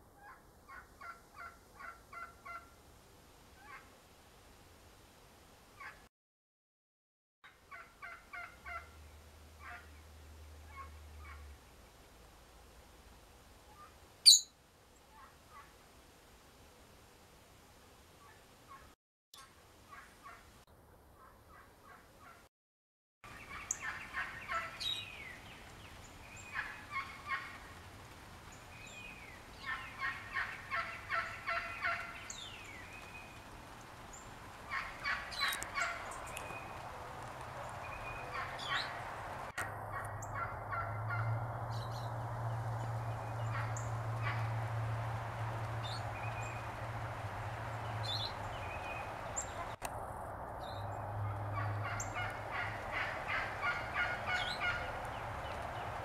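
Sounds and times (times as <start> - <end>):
turkey gobbling: 0.2 - 2.7, 7.7 - 9.0, 9.6 - 9.9, 19.9 - 20.4, 23.5 - 25.0, 26.4 - 27.7, 29.6 - 32.4, 34.7 - 41.9, 42.8 - 44.6, 45.8 - 49.8, 51.2 - 55.9.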